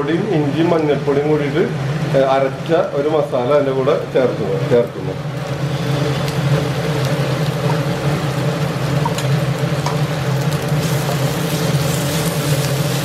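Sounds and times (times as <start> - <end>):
steady low hum: 0.0 - 13.0
spices sizzling in hot oil: 4.8 - 13.0.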